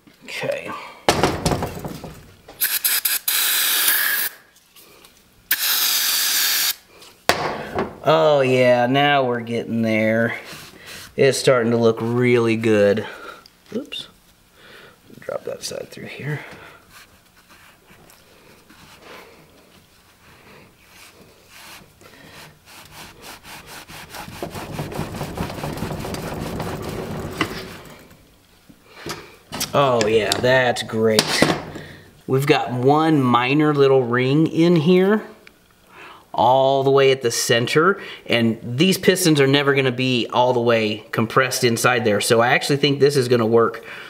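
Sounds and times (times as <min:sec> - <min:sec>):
aerosol spray can hissing: 0:02.6 - 0:04.4, 0:05.5 - 0:06.8
cloth rubbing on metal: 0:16.9 - 0:28.3.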